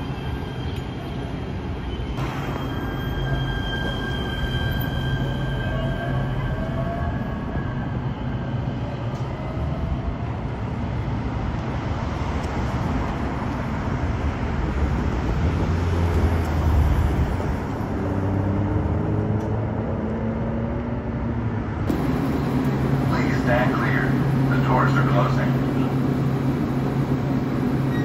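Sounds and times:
light rail train whine: 0.0 - 18.0, 21.6 - 28.0
cars rumbling past: 10.5 - 27.8.

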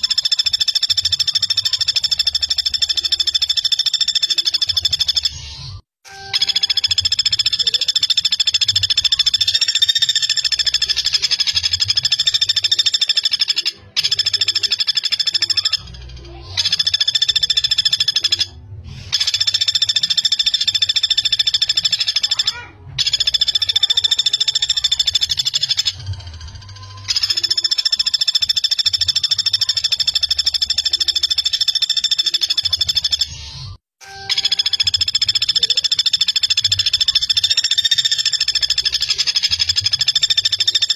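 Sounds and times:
woodpecker rattling trills: 0.0 - 40.9.

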